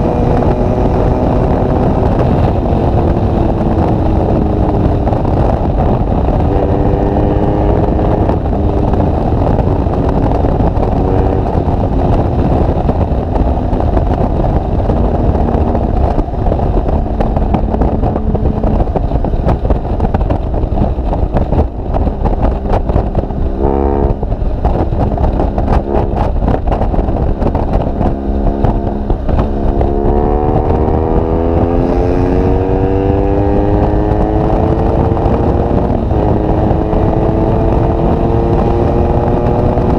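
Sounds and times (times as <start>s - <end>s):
heavy wind noise: 0.0s - 39.9s
motorcycle engine: 0.0s - 39.9s.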